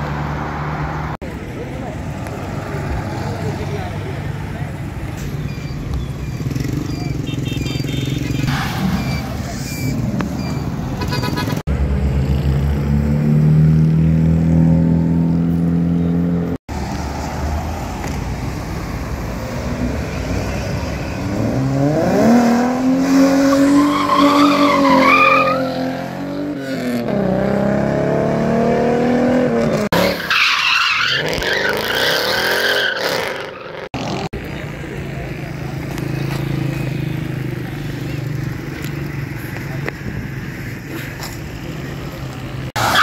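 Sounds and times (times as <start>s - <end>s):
hissing tyre skid: 23.1s - 25.9s, 42.8s - 43.0s
tyres squealing: 23.4s - 25.8s, 30.0s - 33.9s.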